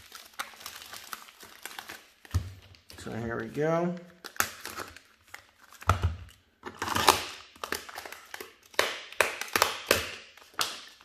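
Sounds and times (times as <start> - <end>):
plastic-wrapped box being opened: 0.0 - 3.2, 3.9 - 8.8.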